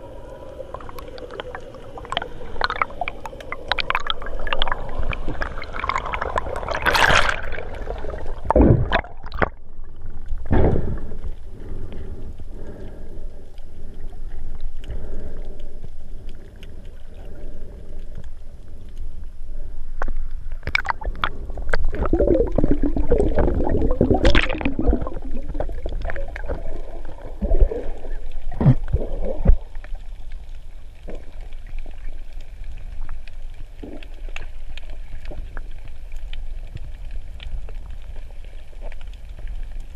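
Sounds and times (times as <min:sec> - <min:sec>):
bubbling gurgles: 0:00.0 - 0:11.4, 0:20.6 - 0:30.3
underwater rumble of moving water: 0:00.0 - 0:39.9
crackles and knocks: 0:00.3 - 0:39.9.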